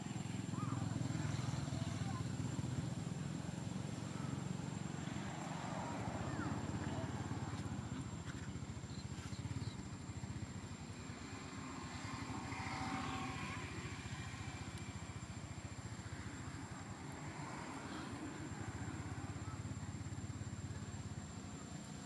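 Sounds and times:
engine idling rumble: 0.0 - 12.5.

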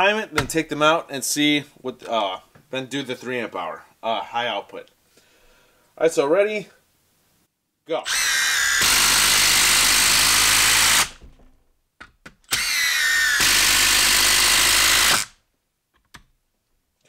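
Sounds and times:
impact driver motor whine: 8.1 - 11.2, 12.5 - 15.3
impact driver hammering: 8.2 - 11.2, 12.5 - 15.3.

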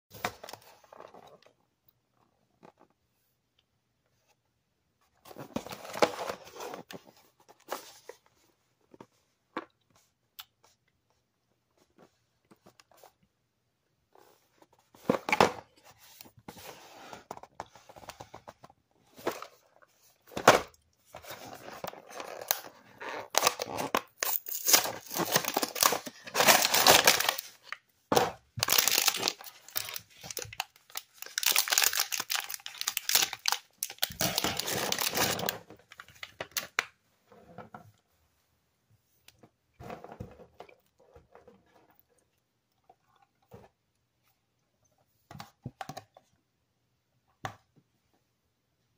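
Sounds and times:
packaging ripping and crinkling: 22.0 - 27.8, 28.6 - 36.8.

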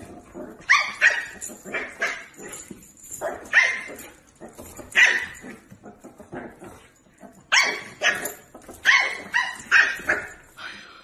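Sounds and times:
dog barking: 7.5 - 10.4.

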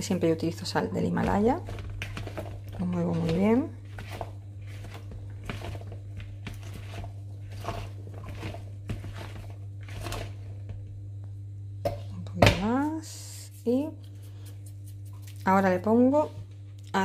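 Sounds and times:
low steady hum: 0.0 - 17.0
vegetables rustling in plastic bowl: 1.0 - 10.5.

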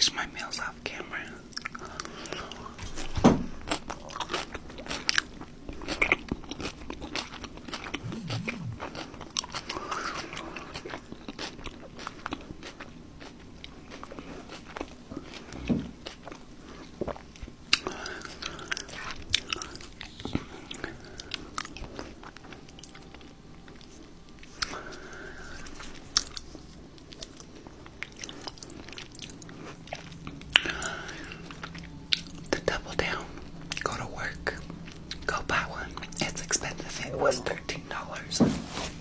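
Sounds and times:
person chewing fried chicken: 1.5 - 32.5
mouth clicks: 8.0 - 9.0.

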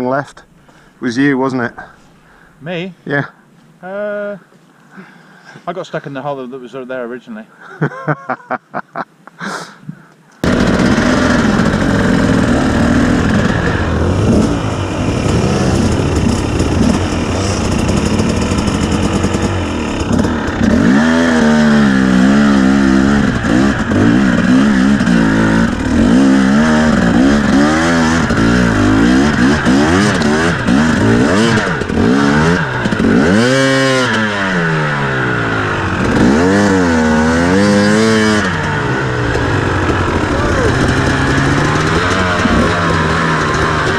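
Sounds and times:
motorcycle engine revving: 10.4 - 43.9.

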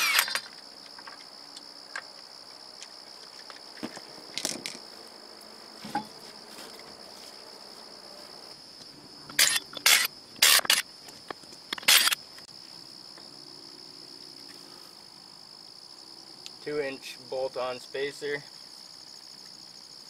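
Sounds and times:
cordless power tool bursts: 0.0 - 0.5, 9.4 - 10.8, 11.8 - 12.2
crickets chirring: 0.0 - 20.0.

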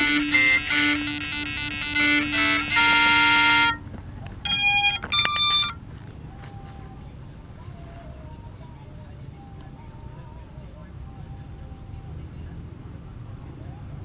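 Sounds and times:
drone motor startup beeps: 0.0 - 3.8, 4.5 - 5.8.

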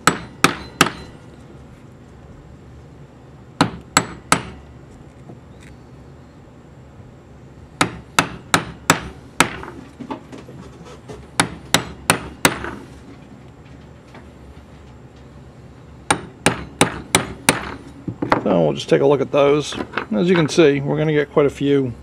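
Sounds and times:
hammer striking metal punch: 0.0 - 1.2, 3.6 - 4.6, 7.8 - 9.8, 11.4 - 12.8, 16.1 - 17.8.

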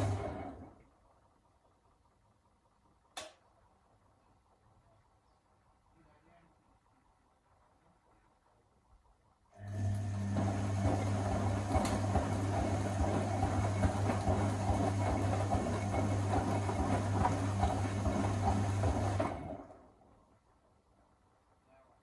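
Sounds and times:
washing machine motor humming: 0.0 - 2.4, 9.5 - 20.1.

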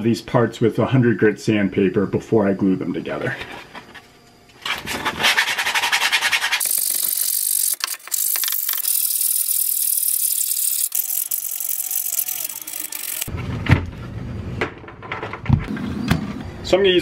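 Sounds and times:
sandpaper rubbing on plastic: 5.0 - 13.3.

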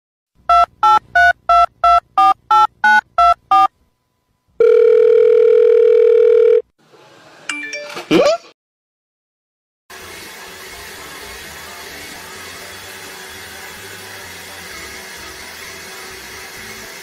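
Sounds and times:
touch-tone keypad beeps: 0.5 - 3.7.

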